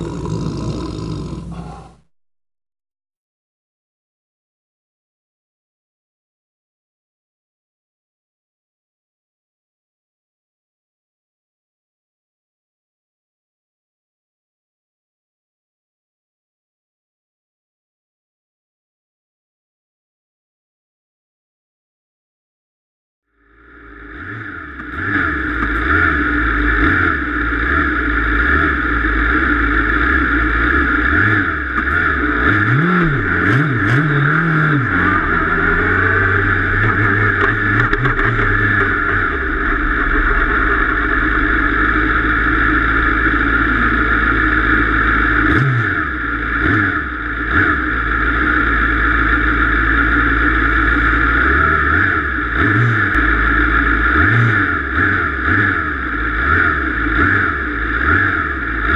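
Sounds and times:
car engine idling: 23.3s - 58.9s
engine throttle blips: 23.3s - 58.9s.

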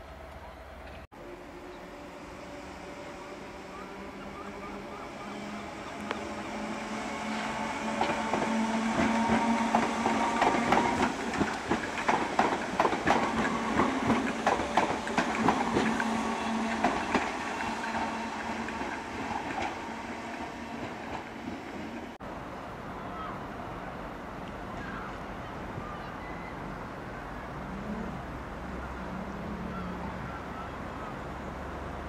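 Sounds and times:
train hum: 0.0s - 32.0s
train wheels clattering over rails: 7.3s - 22.0s.

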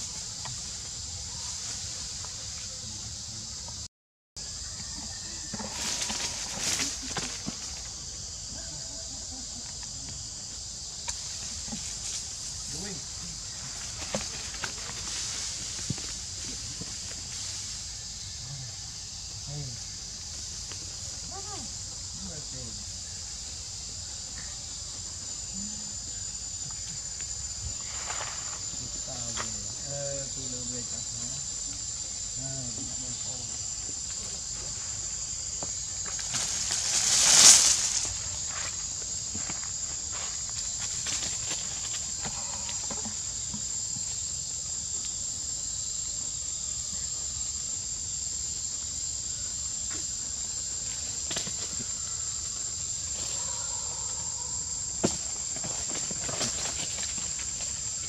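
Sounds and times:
insects droning: 0.0s - 58.0s
leaves rustling: 5.4s - 8.2s, 11.1s - 18.0s, 32.9s - 42.7s.

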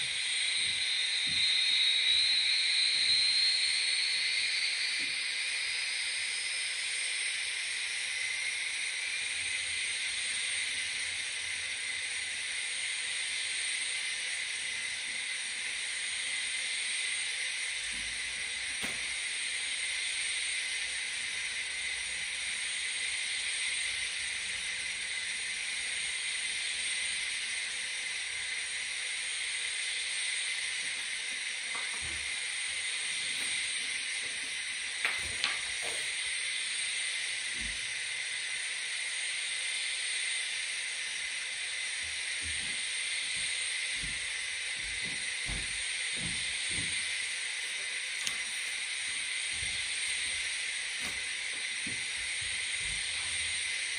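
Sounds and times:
high turbine hiss: 0.0s - 53.9s.

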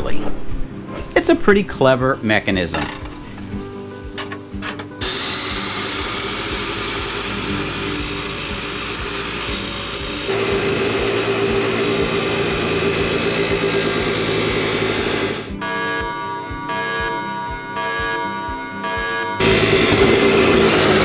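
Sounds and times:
saw wheel grinding metal bar: 5.0s - 16.1s, 17.8s - 21.0s
chop saw motor whining: 5.0s - 21.0s.

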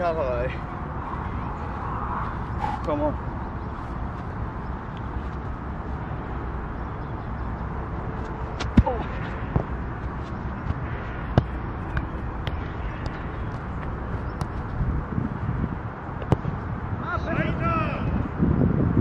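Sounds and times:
low wind rumble on microphone: 0.0s - 19.0s
football thudding on turf: 8.6s - 9.8s, 10.6s - 13.2s.

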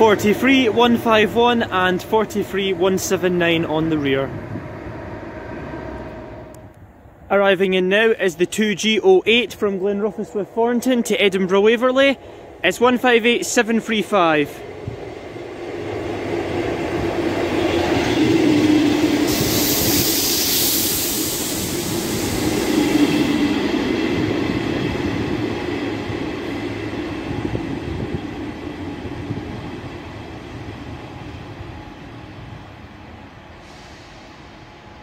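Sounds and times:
diesel train rumbling past: 0.0s - 35.0s
train hiss: 17.7s - 24.6s, 31.4s - 35.0s.

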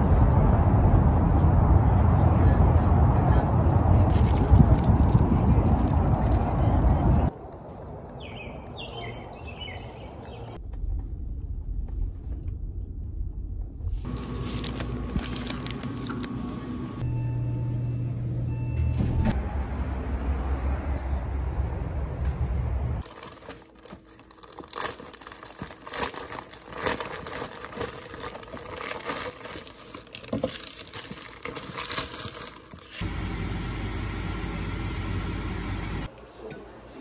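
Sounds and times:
low steady rumble: 0.0s - 7.3s, 10.6s - 23.1s
plastic bag crinkling and tearing: 4.1s - 7.2s, 14.1s - 16.6s, 23.0s - 33.0s.

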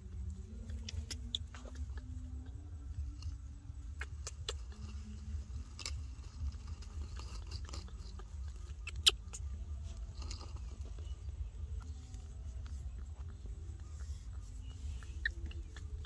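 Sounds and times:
low steady rumble: 0.0s - 16.0s
scratching on dry dirt and leaves: 0.0s - 16.0s.

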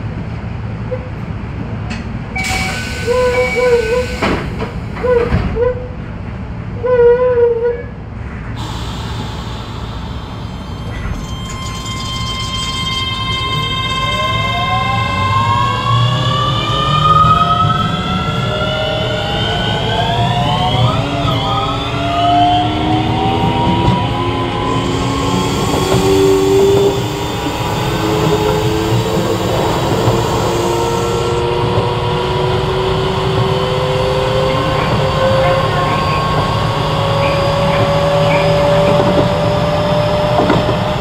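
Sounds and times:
wheels rumbling on rail: 0.0s - 41.0s
train motor whine: 8.6s - 41.0s.

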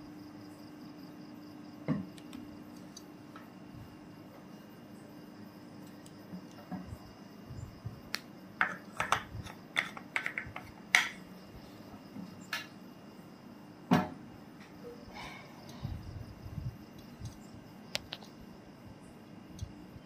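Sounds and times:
bottles and cups clicking: 8.6s - 11.2s.

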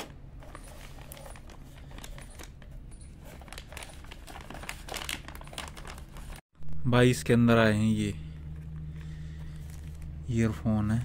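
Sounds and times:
low steady hum: 0.0s - 11.0s
plastic pouch crinkling: 0.5s - 6.4s.

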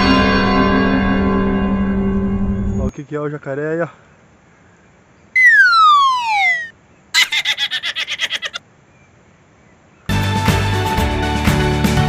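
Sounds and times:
descending slide whistle: 5.4s - 8.6s.

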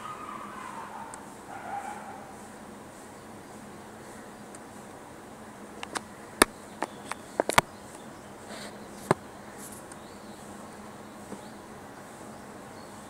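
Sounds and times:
faint steady hum: 0.0s - 13.0s
sharp clicks and knocks: 5.8s - 8.0s.

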